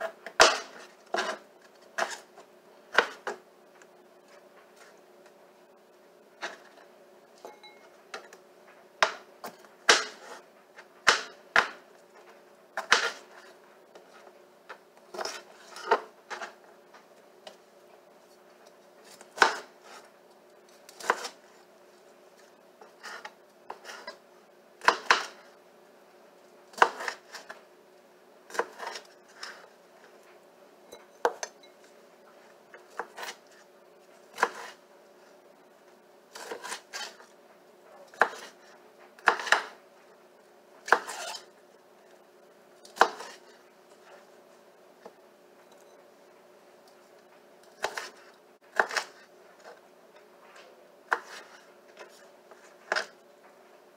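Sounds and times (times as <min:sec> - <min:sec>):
knife chopping on plastic board: 0:00.0 - 0:01.4, 0:02.9 - 0:03.4, 0:09.0 - 0:10.4, 0:11.0 - 0:11.8, 0:12.8 - 0:13.3, 0:19.1 - 0:19.7, 0:20.9 - 0:21.4, 0:24.8 - 0:25.4, 0:26.7 - 0:27.5, 0:34.4 - 0:34.8, 0:38.2 - 0:38.6, 0:39.2 - 0:39.8, 0:42.9 - 0:43.4, 0:47.8 - 0:49.2, 0:51.1 - 0:51.6.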